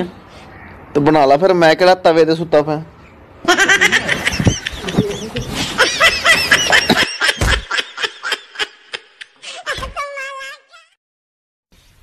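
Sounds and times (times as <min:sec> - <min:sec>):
high-pitched laughter: 0:03.4 - 0:10.9.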